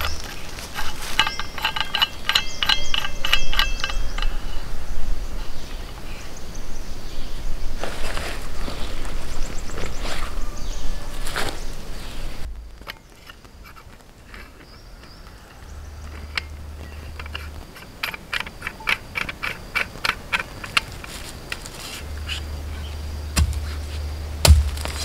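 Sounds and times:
low rumble: 12.3 - 13.3
sharp knocks and clicks: 23.4 - 23.8.

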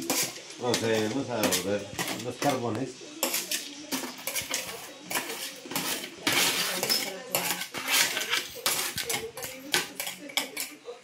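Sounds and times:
metal tool moving charcoal: 0.0 - 10.7.

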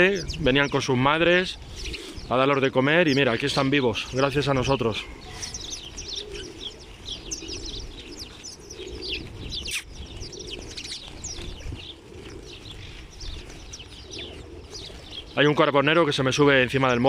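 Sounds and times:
sparrows chirping: 0.0 - 17.0.

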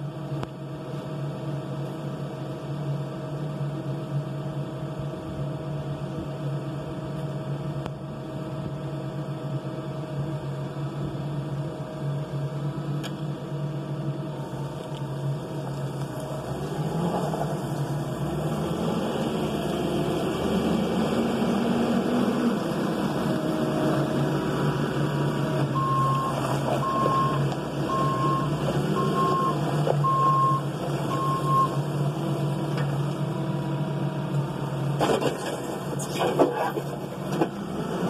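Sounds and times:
backhoe diesel engine running: 0.0 - 38.0
reverse alarm beeping: 25.8 - 31.8.

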